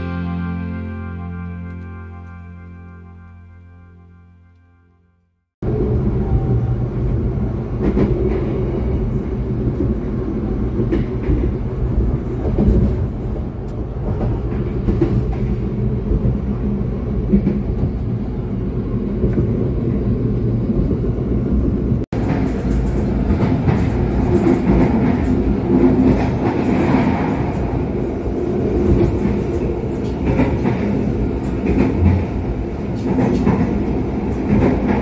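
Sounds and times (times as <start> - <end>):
train interior rumble: 5.6 - 35.0.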